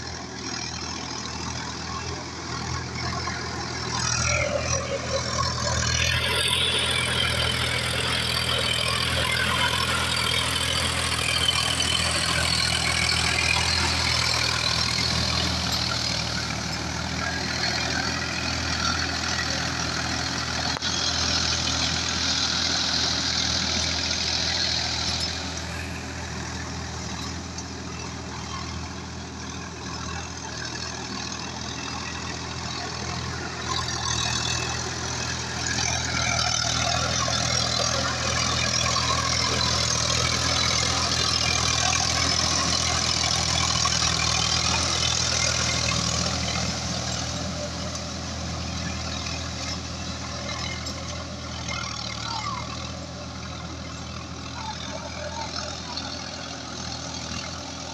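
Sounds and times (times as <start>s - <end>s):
tractor diesel engine running: 0.0s - 57.9s.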